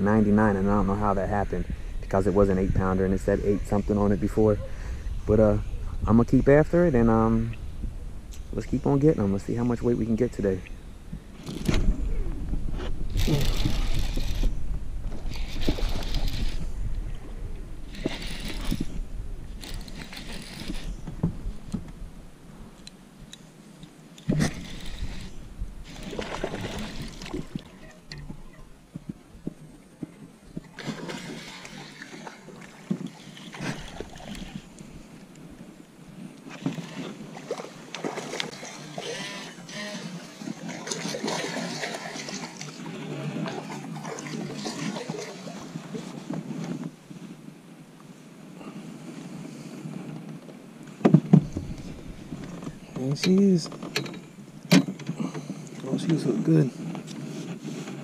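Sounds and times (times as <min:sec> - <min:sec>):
fishing rod rustling and scraping: 0:11.2 - 0:21.9, 0:23.3 - 0:28.4, 0:30.7 - 0:35.5, 0:43.4 - 0:47.4, 0:51.3 - 0:54.4, 0:55.1 - 0:58.0
fishing reel spool whirring: 0:13.1 - 0:14.6, 0:15.2 - 0:16.7, 0:17.8 - 0:21.1, 0:24.4 - 0:27.7, 0:33.3 - 0:34.7, 0:38.5 - 0:40.3.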